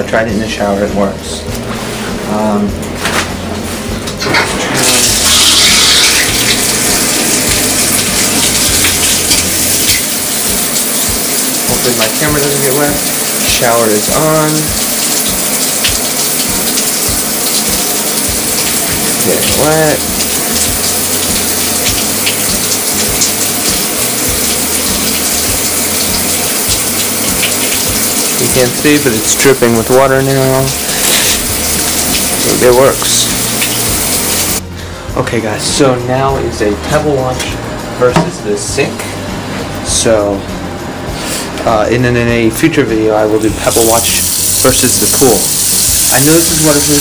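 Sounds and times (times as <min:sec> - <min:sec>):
shower water spraying into bathtub: 0:04.4 - 0:34.6, 0:42.6 - 0:47.0.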